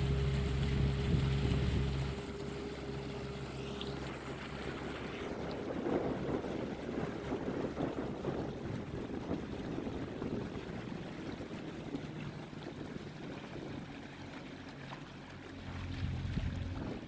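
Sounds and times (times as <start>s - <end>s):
boat motor humming: 0.0s - 17.0s
water noise: 0.0s - 17.0s.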